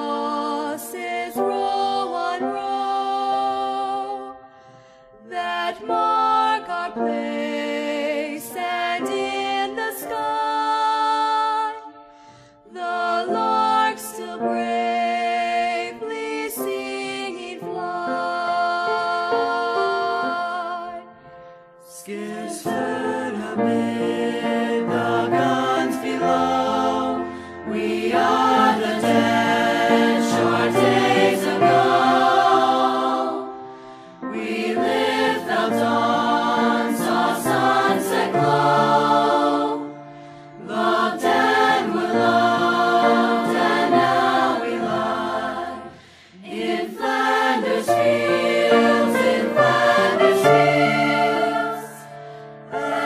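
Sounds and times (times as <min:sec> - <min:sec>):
choir singing: 0:00.0 - 0:04.4, 0:05.2 - 0:11.9, 0:12.6 - 0:21.2, 0:21.8 - 0:53.0.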